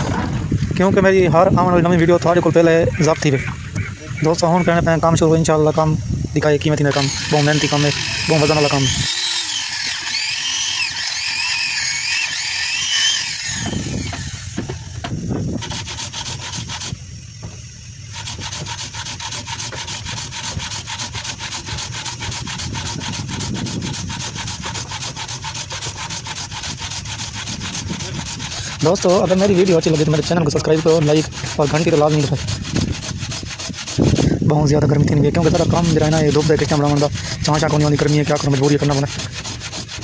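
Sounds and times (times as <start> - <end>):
power sander whine: 3.2 - 40.0
fast rubbing of wood: 6.9 - 17.1, 18.1 - 40.0.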